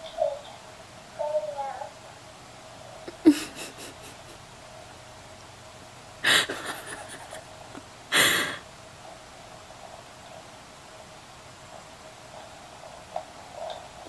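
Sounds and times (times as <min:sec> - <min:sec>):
faint steady hum: 0:00.0 - 0:14.0
short breathy bursts: 0:08.1 - 0:08.7.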